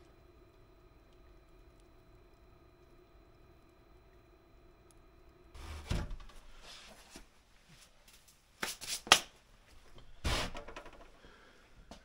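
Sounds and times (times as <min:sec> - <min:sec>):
diesel heater humming: 0:00.0 - 0:06.6
rubbing and rustling handling noises: 0:05.6 - 0:10.7
sharp clicks and knocks: 0:10.4 - 0:11.1.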